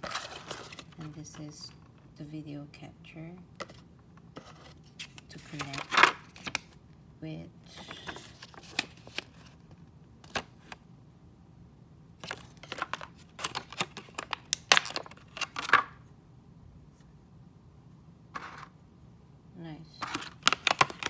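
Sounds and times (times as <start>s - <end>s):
cardboard packaging rustling: 0.0s - 1.5s, 7.8s - 10.8s, 12.2s - 15.9s, 20.0s - 21.0s.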